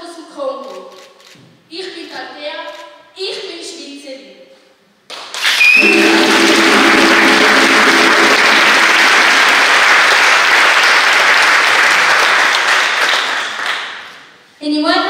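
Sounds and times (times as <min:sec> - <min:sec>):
audience applauding: 0:05.3 - 0:14.2.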